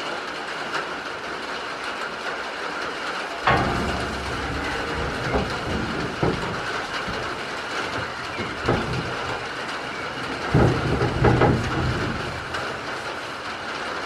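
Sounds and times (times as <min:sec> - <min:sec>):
rain on roof: 0:00.0 - 0:14.0
goat thudding against person: 0:03.5 - 0:13.1.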